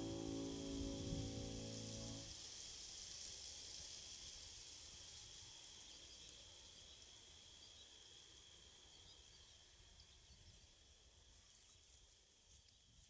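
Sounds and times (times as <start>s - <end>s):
digital piano note: 0.0s - 2.3s
insects buzzing and chirping: 0.0s - 13.0s.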